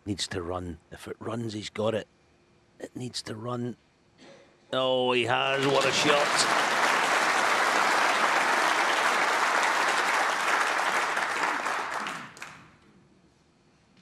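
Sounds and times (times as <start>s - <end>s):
audience applauding: 5.4s - 12.8s.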